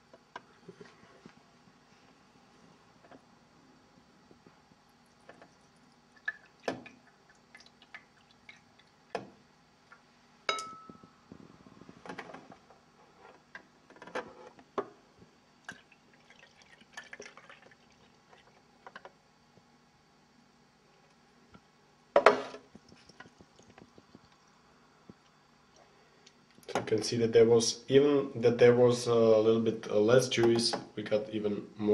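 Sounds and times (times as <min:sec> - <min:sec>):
liquid trickling: 0:05.0 - 0:09.2, 0:15.6 - 0:18.7, 0:22.8 - 0:24.6
glassware clinking on wooden counter: 0:10.5 - 0:11.1.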